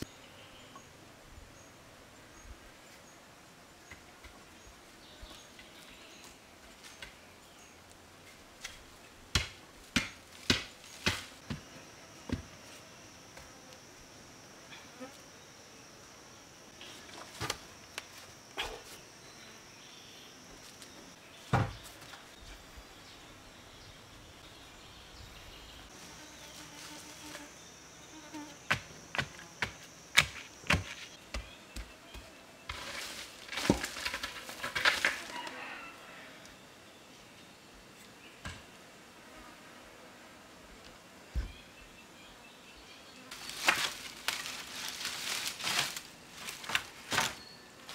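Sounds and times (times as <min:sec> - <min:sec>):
insect buzzing: 0:10.5 - 0:21.2, 0:24.8 - 0:35.6.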